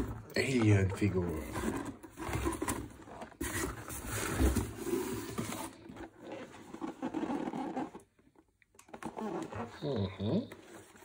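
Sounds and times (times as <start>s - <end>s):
cardboard scraping and rustling: 0.0s - 8.2s.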